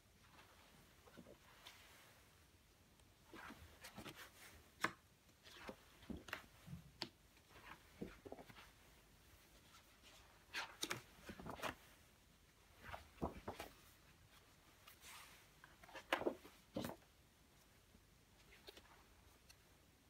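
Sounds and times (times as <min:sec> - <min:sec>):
sample book pages rustling: 0:00.1 - 0:19.9
page slapping: 0:03.3 - 0:08.7, 0:10.5 - 0:11.8, 0:12.8 - 0:13.8, 0:15.8 - 0:17.0.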